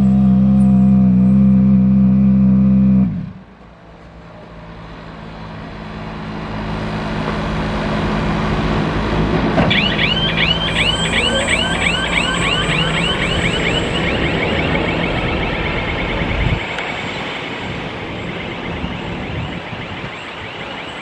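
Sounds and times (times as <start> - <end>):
fast high chirps: 9.8 - 15.2.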